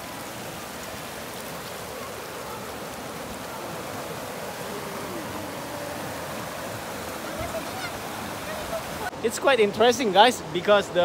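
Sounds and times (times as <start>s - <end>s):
river water rushing over rocks: 0.0s - 11.0s.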